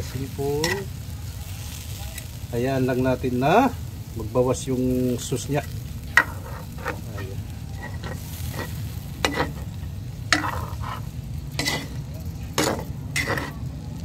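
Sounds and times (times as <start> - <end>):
metal spatula scraping a pan: 0.0 - 0.9, 5.6 - 13.7
sauce sizzling in a wok: 0.0 - 14.0.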